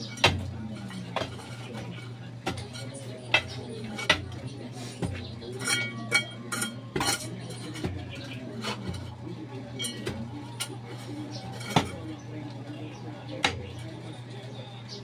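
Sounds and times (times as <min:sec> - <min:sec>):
hand tools clinking in soil: 0:05.0 - 0:09.1.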